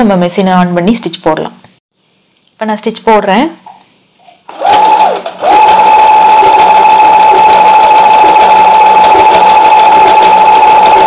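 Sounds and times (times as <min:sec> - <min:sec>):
sewing machine motor whine: 0:04.5 - 0:11.0.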